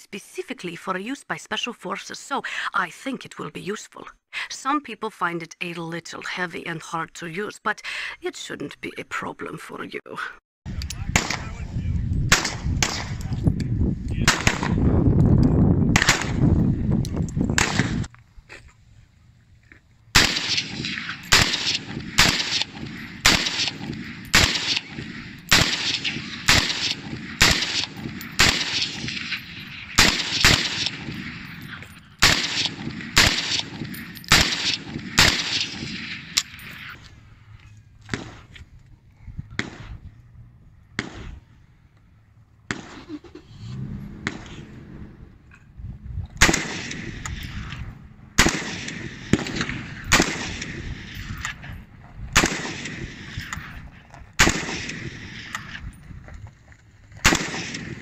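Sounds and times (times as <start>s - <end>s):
rifle single shots with echo: 11.1s - 11.6s, 12.3s - 13.3s, 14.2s - 14.9s, 15.9s - 16.6s, 17.5s - 18.1s, 20.1s - 37.0s, 38.0s - 38.5s, 39.6s - 40.0s, 40.9s - 41.5s, 42.6s - 43.1s, 44.1s - 44.7s, 46.4s - 53.8s, 54.4s - 55.8s, 57.2s - 58.0s.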